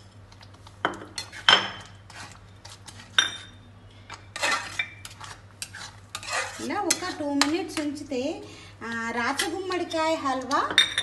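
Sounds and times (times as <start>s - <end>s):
metal spatula scraping a pan: 4.3s - 7.5s.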